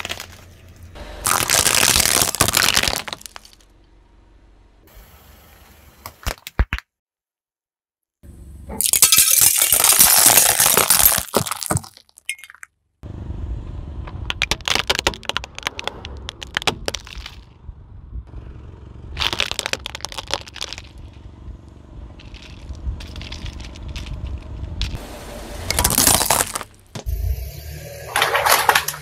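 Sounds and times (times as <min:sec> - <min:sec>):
plastic toy crunching: 0:00.0 - 0:00.4, 0:01.2 - 0:03.6, 0:08.8 - 0:12.6, 0:14.3 - 0:17.5, 0:19.2 - 0:21.2, 0:22.2 - 0:25.0, 0:25.7 - 0:26.8, 0:28.1 - 0:29.0
glass tubes shattering: 0:01.3 - 0:03.6, 0:08.8 - 0:12.7, 0:25.7 - 0:26.8, 0:28.0 - 0:29.0.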